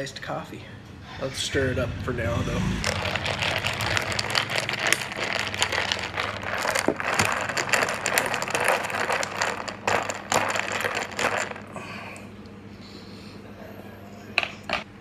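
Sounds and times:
spoon stirring ice in a glass: 2.9 - 11.7.

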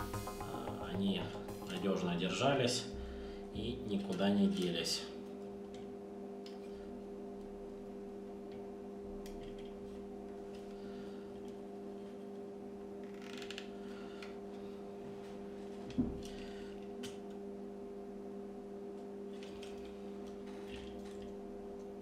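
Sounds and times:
steady electrical hum: 0.0 - 22.0
faint clicks of small parts: 19.3 - 21.4.

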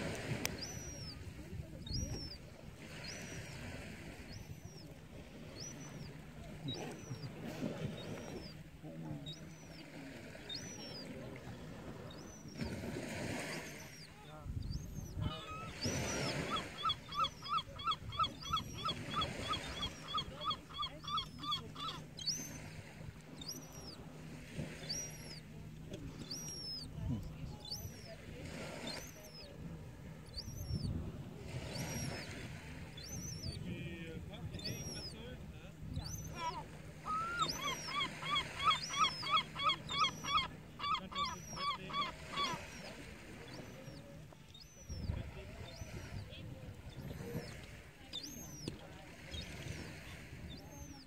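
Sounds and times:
young gull whining calls: 0.2 - 1.2, 1.8 - 3.6, 4.2 - 4.9, 5.5 - 8.6, 14.7 - 22.6, 23.4 - 24.0, 24.8 - 25.4, 26.2 - 26.9, 30.2 - 30.9, 31.7 - 32.3, 33.0 - 33.6, 34.6 - 35.2, 36.0 - 46.3
thin high gull calls: 0.4 - 1.2, 14.8 - 22.6, 36.0 - 44.9.

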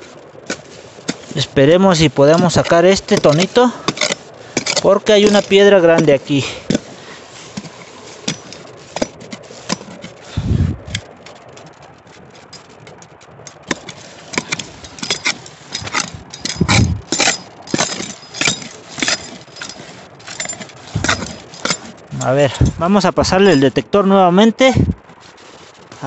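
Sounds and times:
digging tool scraping soil and stones: 0.0 - 26.0
dull thumps: 13.5 - 23.6.

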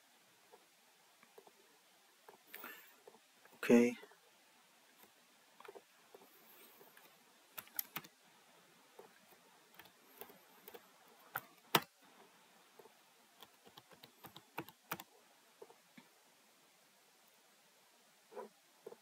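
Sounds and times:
keyboard typing: 7.0 - 8.1, 9.7 - 11.9, 13.4 - 15.1.

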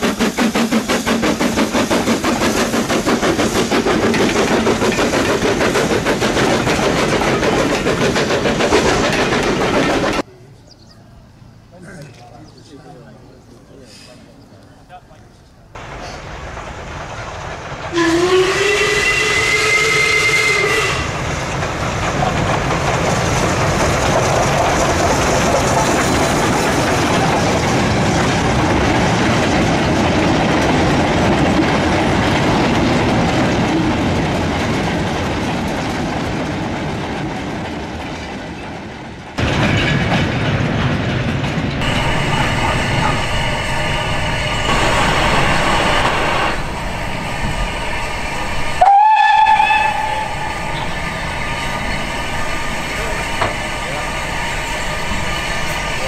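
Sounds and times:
steam hissing: 0.0 - 10.2, 15.8 - 29.3, 41.8 - 56.0
wagons rumbling over rails: 0.0 - 13.6, 15.7 - 56.0
steam whistle blast: 17.9 - 21.2, 48.6 - 51.5.

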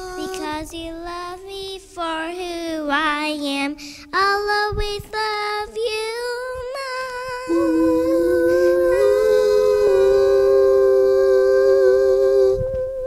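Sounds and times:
two voices singing in harmony: 6.7 - 13.0.

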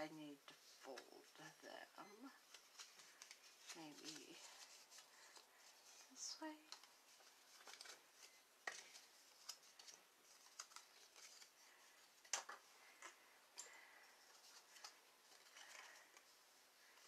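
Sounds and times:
cardstock being folded and creased: 2.4 - 13.2, 14.2 - 17.0.

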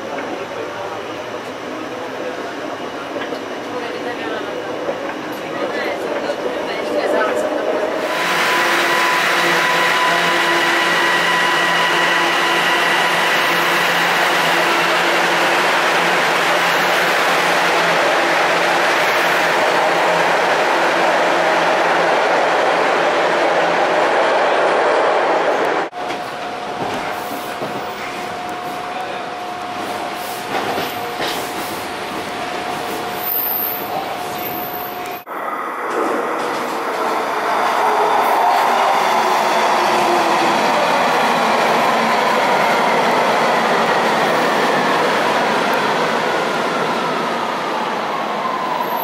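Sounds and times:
subway train whirring hum: 0.0 - 49.0
train wheels rumbling on rail: 25.1 - 35.3.

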